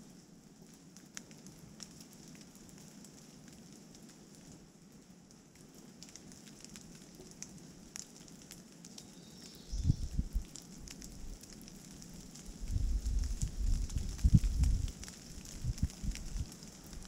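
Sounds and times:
rain pattering in woodland: 0:00.0 - 0:17.0
wind buffeting microphone: 0:09.7 - 0:10.5, 0:12.5 - 0:17.0.

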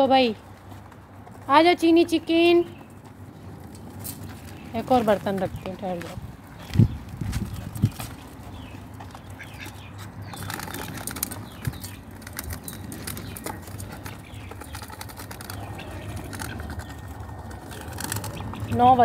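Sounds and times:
ducks quacking: 0:09.2 - 0:11.0
duck bills clicking in metal bowl: 0:10.2 - 0:17.0, 0:17.7 - 0:18.8.

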